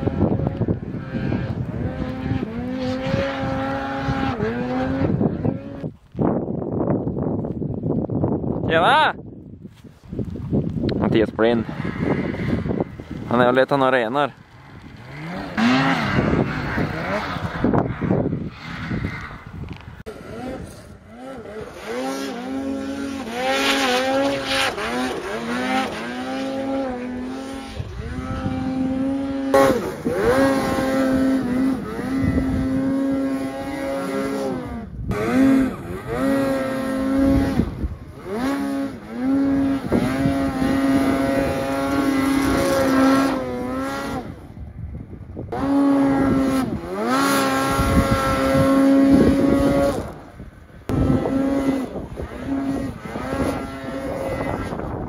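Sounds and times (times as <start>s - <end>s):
snowmobile engine revving: 0.0s - 5.9s, 11.0s - 44.6s, 45.5s - 55.0s.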